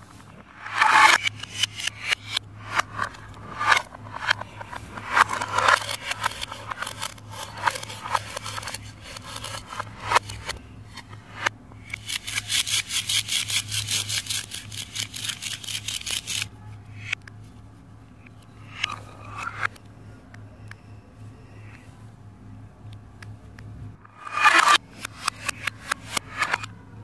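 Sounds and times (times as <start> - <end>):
plastic toy knife sawing: 5.1 - 10.6, 11.9 - 16.5.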